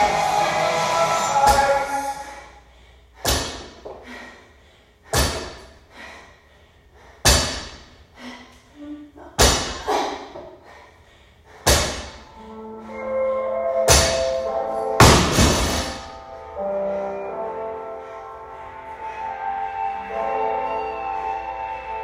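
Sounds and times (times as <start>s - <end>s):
background music: 0.0s - 2.7s, 11.7s - 22.0s.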